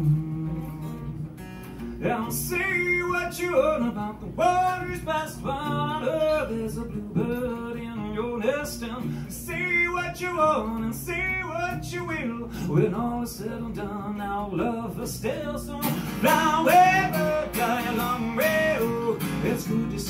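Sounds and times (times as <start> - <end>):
man singing: 0.0 - 1.1, 2.0 - 20.0
acoustic guitar: 0.0 - 20.0.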